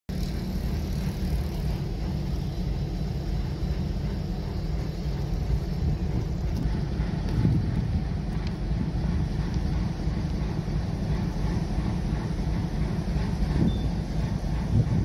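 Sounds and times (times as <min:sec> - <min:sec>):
wind buffeting microphone: 0:03.8 - 0:15.0.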